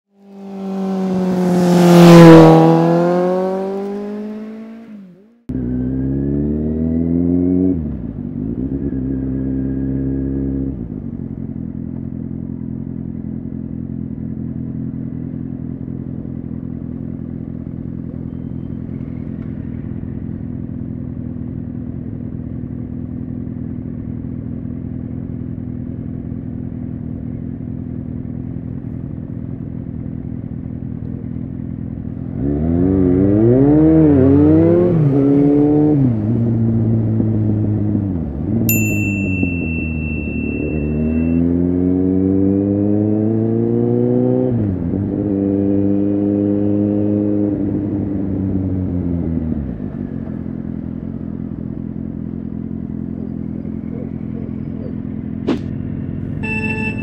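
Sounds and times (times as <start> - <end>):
vehicle engine passing by: 0.2 - 10.7
motorcycle accelerating: 0.2 - 57.0
motorcycle engine idling: 10.9 - 32.4, 37.8 - 41.4, 49.8 - 57.0.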